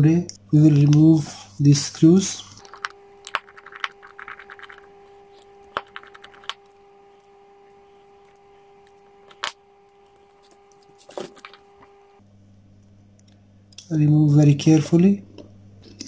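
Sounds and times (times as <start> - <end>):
faint hum: 0.0 - 16.0.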